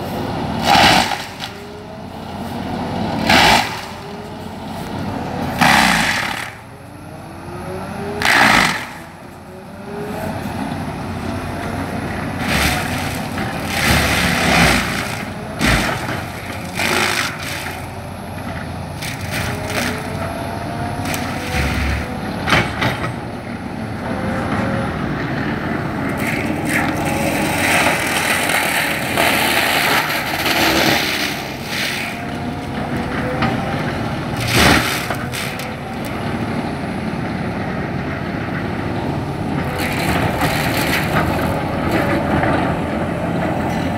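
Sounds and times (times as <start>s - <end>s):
forestry mulcher grinding wood: 0.0s - 43.9s.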